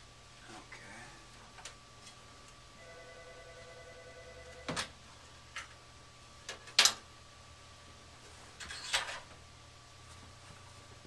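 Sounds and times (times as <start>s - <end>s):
faint steady hum: 0.0s - 11.0s
clicks and knocks of furnace parts: 6.4s - 7.0s.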